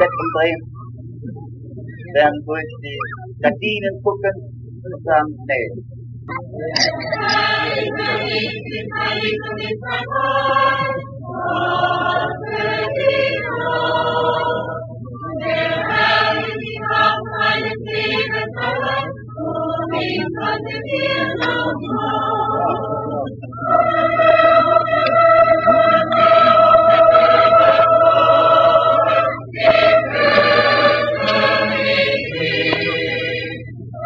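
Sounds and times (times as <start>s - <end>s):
steady low hum: 0.0s - 34.0s
crowd singing in chorus: 6.8s - 33.7s.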